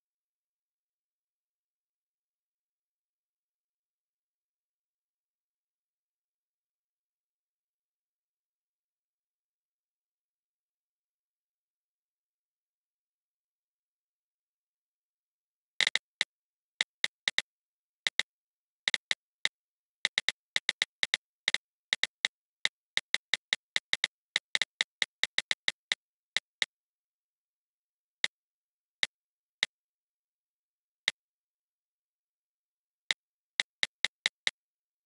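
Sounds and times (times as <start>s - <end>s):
on-screen keyboard clicks: 15.8s - 17.4s, 18.1s - 18.3s, 18.9s - 26.7s, 33.6s - 34.6s.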